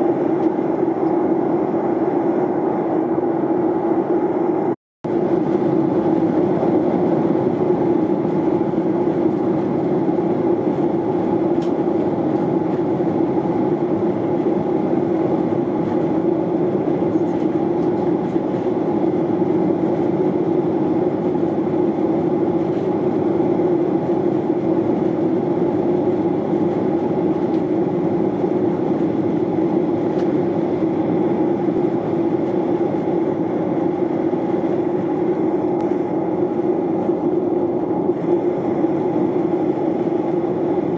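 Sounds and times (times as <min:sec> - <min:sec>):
airliner cabin engine noise: 0:00.0 - 0:40.9.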